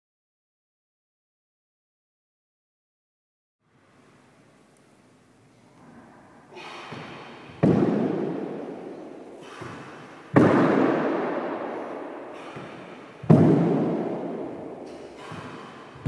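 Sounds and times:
dumbbells thudding on hardwood floor: 6.8s - 8.7s, 9.4s - 16.0s.

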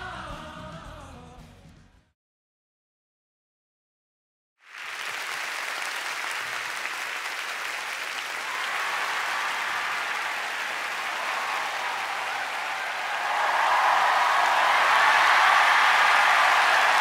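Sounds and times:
large crowd applauding: 4.6s - 17.0s.

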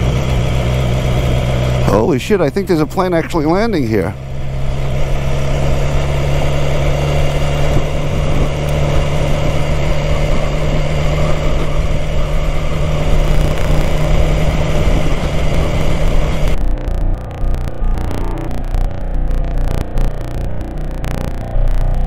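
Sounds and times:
motorcycle engine idling: 0.0s - 16.7s.

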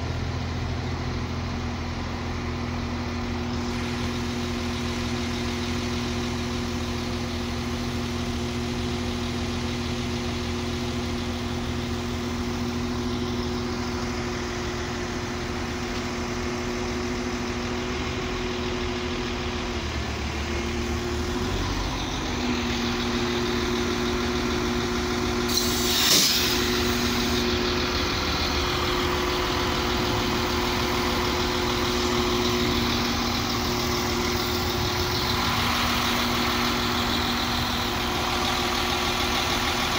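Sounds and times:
train engine hum: 0.0s - 39.9s
air hiss: 25.5s - 27.5s.

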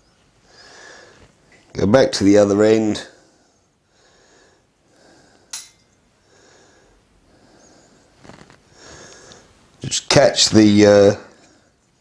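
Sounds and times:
man breathing softly: 0.4s - 1.4s, 3.1s - 5.5s, 6.2s - 9.6s.

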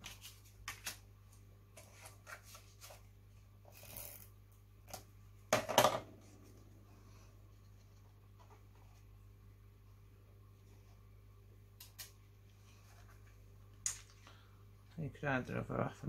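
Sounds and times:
paper rustling and tapping: 0.0s - 1.0s.

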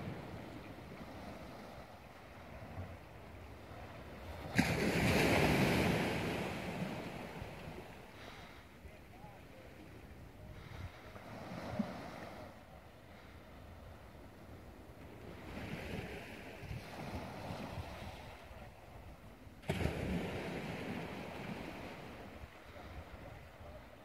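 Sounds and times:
wind rumbling on microphone: 0.0s - 24.0s
small waves washing onto rocks: 3.7s - 8.6s, 19.6s - 23.4s.

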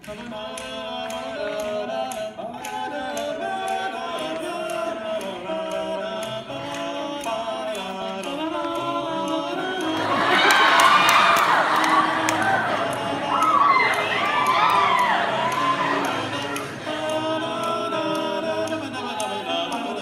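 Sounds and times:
male quartet singing a cappella: 0.0s - 20.0s.

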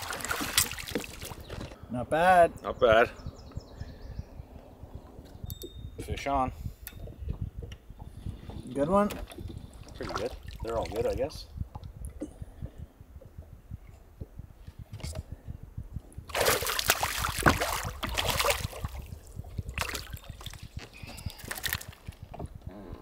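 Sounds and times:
fish splashing at water surface: 0.0s - 1.4s, 16.3s - 19.0s.

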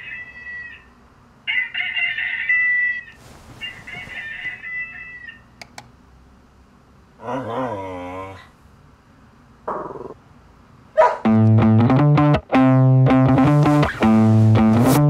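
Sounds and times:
bedding rustling: 3.1s - 5.0s, 13.3s - 15.0s
dog whining: 7.2s - 8.6s, 9.7s - 10.2s.

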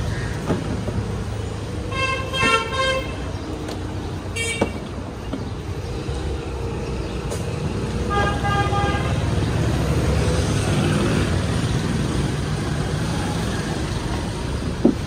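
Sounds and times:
street traffic rumbling: 0.0s - 15.0s
vehicle horns tooting: 1.9s - 3.3s, 4.3s - 4.9s, 8.1s - 9.2s.

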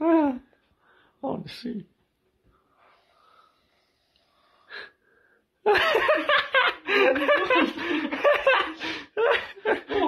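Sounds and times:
people laughing stifled: 5.7s - 10.0s.

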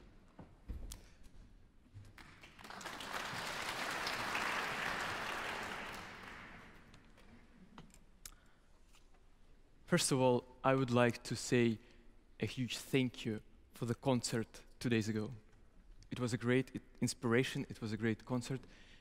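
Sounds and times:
small group applauding: 2.0s - 7.0s.

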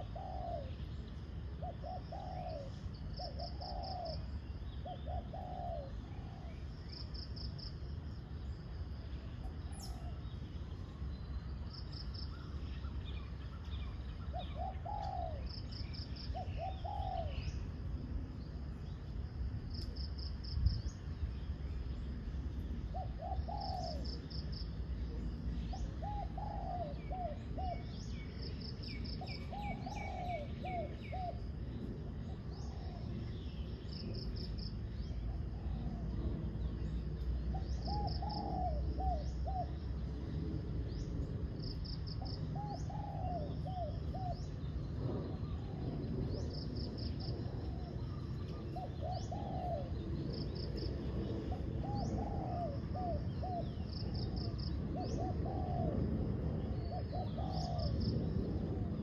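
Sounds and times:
doves cooing: 0.0s - 6.8s, 14.2s - 17.8s, 22.8s - 33.6s, 34.2s - 40.0s, 42.1s - 59.0s
low steady rumble: 0.0s - 59.0s.

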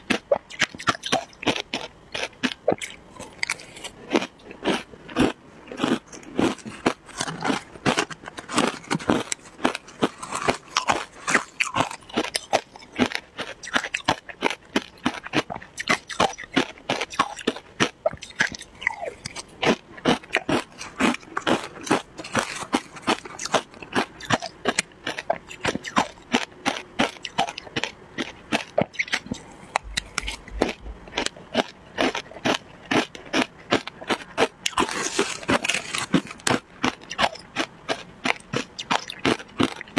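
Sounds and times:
ice being chewed: 0.0s - 39.9s.

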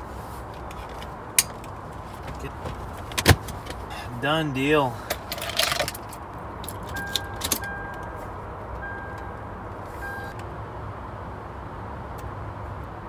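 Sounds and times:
car keys jingling: 0.6s - 3.9s, 5.0s - 8.2s
short electronic beeps: 6.9s - 8.2s, 8.8s - 9.4s, 10.0s - 10.4s.

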